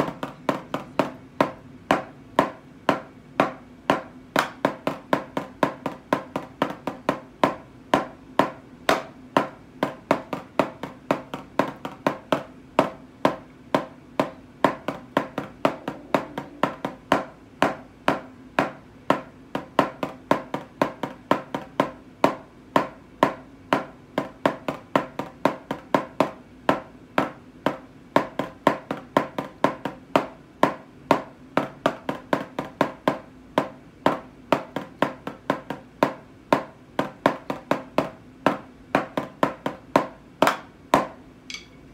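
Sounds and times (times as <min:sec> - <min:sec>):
drumsticks tapping practice pad: 0:00.0 - 0:41.9.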